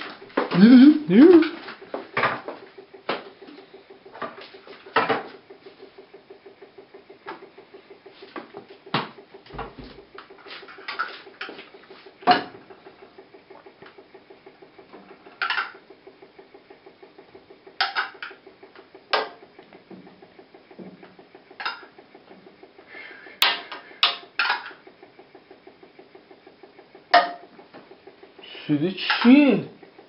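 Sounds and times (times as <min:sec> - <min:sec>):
low pulsing hum: 0:00.0 - 0:17.8.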